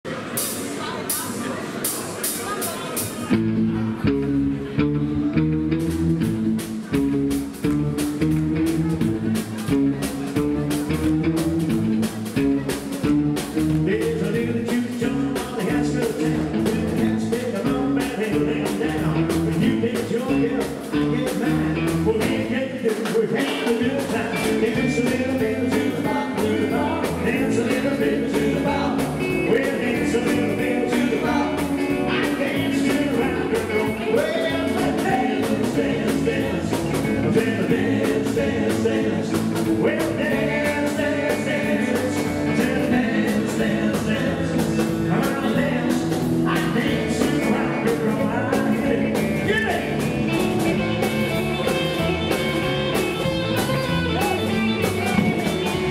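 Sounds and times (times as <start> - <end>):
drum kit: 0.0 - 55.9
electric guitar: 3.2 - 55.9
man singing lead: 12.4 - 55.9.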